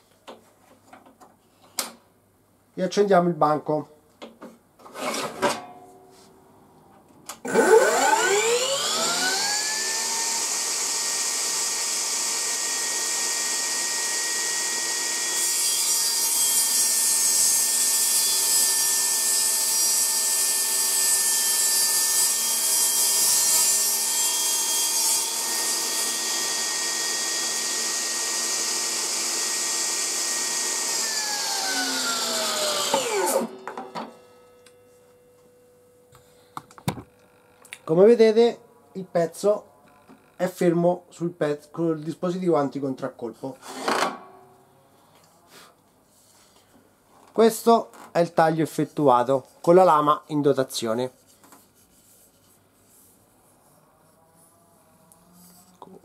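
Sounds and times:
table saw blade whine: 7.4 - 35.3
saw cutting particleboard: 7.5 - 33.6.

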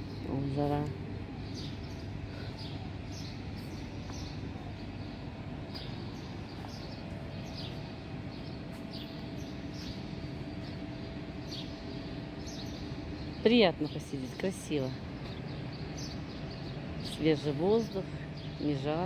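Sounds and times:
faint constant hum: 0.0 - 19.0
small birds chirping: 0.0 - 19.0.

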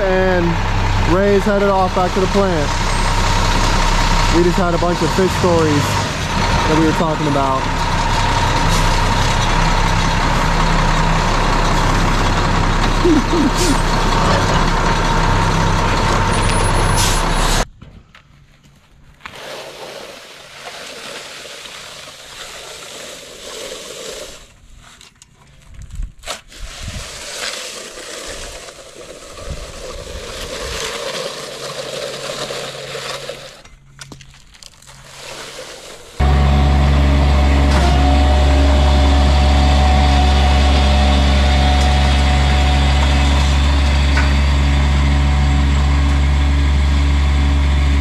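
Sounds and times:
diesel truck engine running: 0.0 - 17.7, 36.2 - 48.0
steady whine: 36.2 - 48.0.

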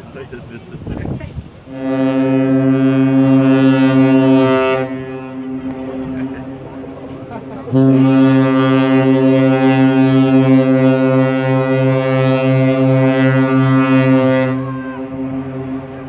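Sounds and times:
ship's horn deep blast: 1.0 - 16.0.

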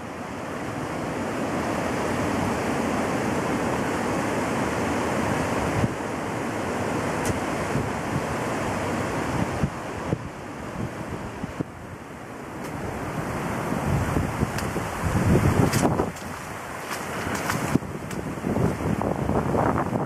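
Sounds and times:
river rushing: 0.0 - 20.0
wind buffeting microphone: 12.6 - 20.0.

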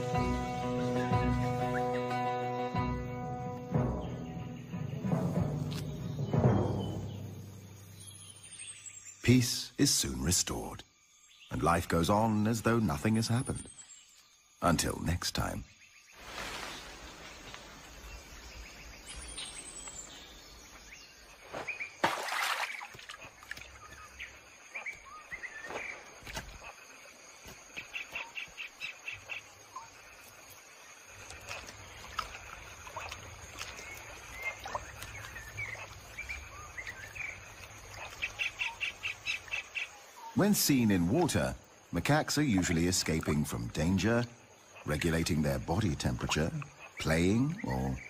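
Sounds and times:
birds chirping and calling: 0.0 - 10.7, 31.4 - 48.0
rapid pulsed bird trill: 0.0 - 16.2.

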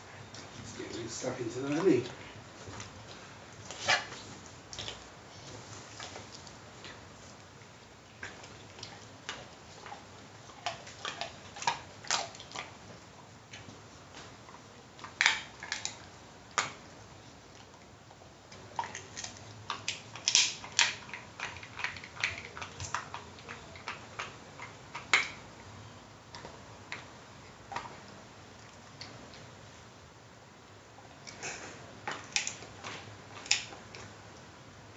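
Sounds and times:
dog crunching a chew: 0.4 - 25.7, 31.2 - 34.1.

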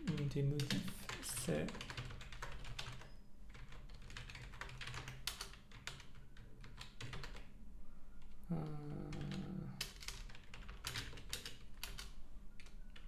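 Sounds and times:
keyboard typing: 0.0 - 7.5, 8.2 - 13.0
low steady hum: 7.5 - 10.6.

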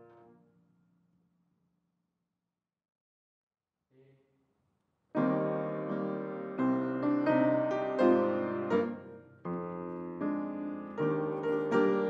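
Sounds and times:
piano chords: 5.2 - 12.0.

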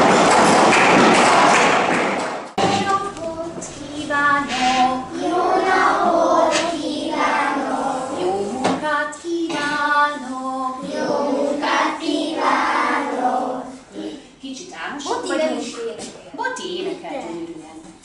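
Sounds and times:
sharp claps: 0.0 - 2.6
children singing: 4.0 - 8.8, 9.4 - 14.2.

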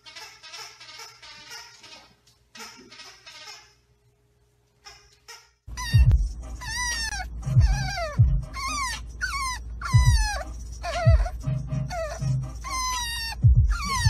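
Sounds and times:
puppy whining: 4.9 - 14.0.

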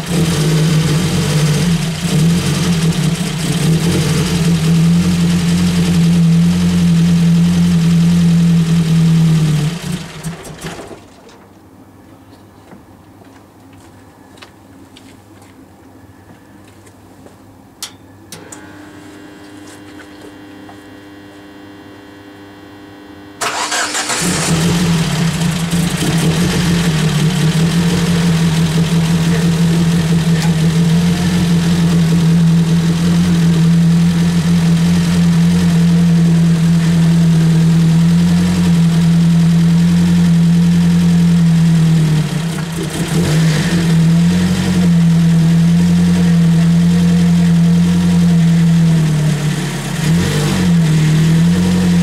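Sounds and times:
car engine starting and idling: 0.0 - 11.5, 23.4 - 52.0.

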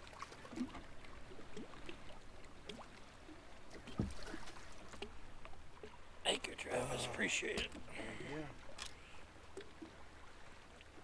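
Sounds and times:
small waves lapping against boat hull: 0.0 - 11.0.

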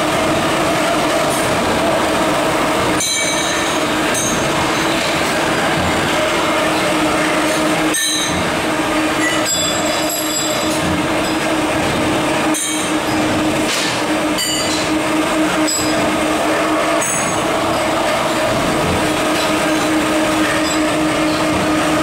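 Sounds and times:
electric motors humming: 0.0 - 22.0
metallic rings and squeals: 3.0 - 5.2, 6.3 - 8.5, 9.1 - 11.4, 14.3 - 16.1, 19.3 - 21.6.

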